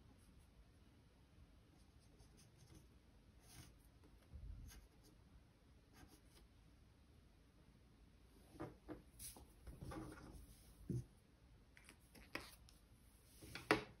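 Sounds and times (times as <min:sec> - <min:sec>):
rustle of hands and paper: 0:09.2 - 0:11.0.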